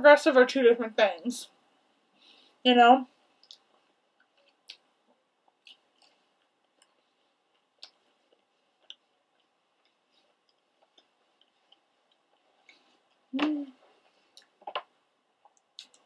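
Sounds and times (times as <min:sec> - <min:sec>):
mouth clicks of chewing: 0:03.4 - 0:04.9, 0:05.5 - 0:07.0, 0:07.6 - 0:12.8, 0:15.4 - 0:16.0.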